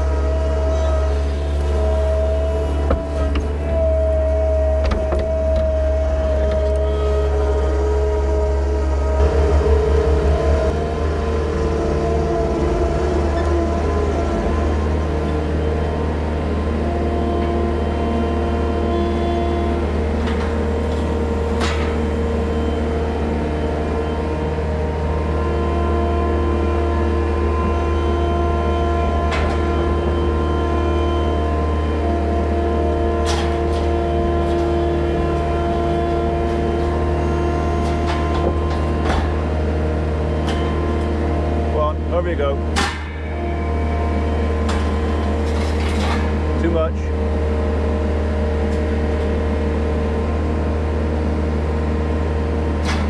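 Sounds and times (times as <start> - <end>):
diesel engine running: 0.0 - 53.0
hydraulic whine: 0.0 - 53.0.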